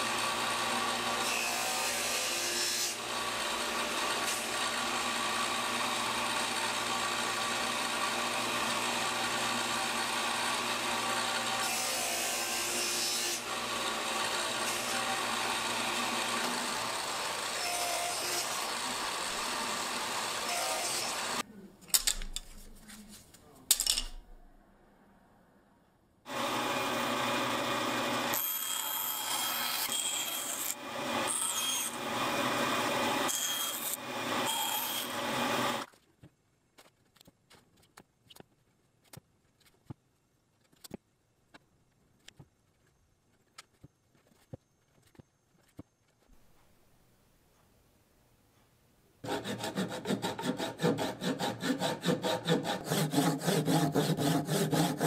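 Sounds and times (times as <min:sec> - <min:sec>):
bandsaw cutting wood: 0:00.0 - 0:21.4, 0:26.3 - 0:35.9, 0:49.2 - 0:55.0
table saw cutting wood: 0:00.0 - 0:21.4, 0:26.3 - 0:35.9, 0:49.2 - 0:55.0.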